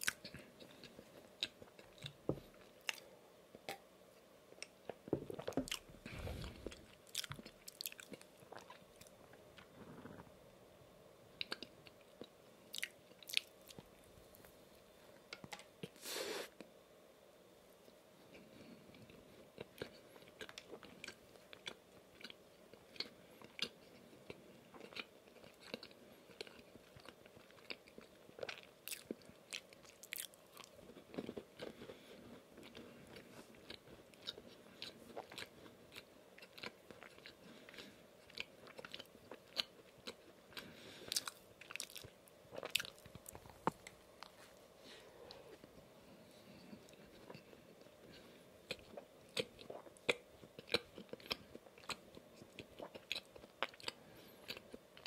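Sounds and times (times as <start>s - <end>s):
chewing donut close up: 18.9s - 44.5s, 46.8s - 55.0s.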